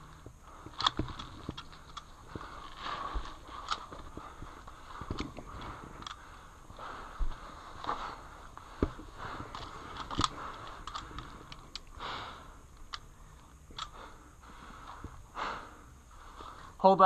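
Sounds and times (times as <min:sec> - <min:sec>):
sharp clicks and ticks: 0:00.2 - 0:07.2, 0:07.8 - 0:14.2.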